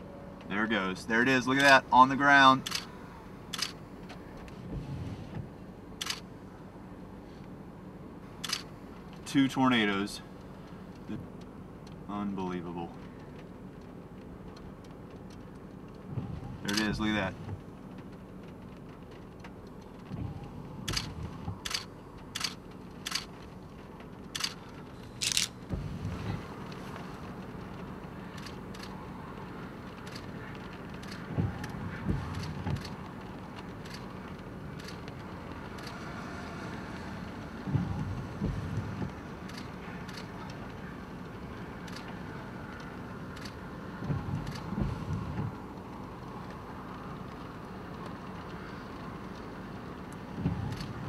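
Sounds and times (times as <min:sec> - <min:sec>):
steady low rumble: 0:00.0 - 0:51.0
wind buffeting a vehicle: 0:00.0 - 0:51.0
sharp ticks: 0:18.6 - 0:23.5, 0:24.2 - 0:24.6.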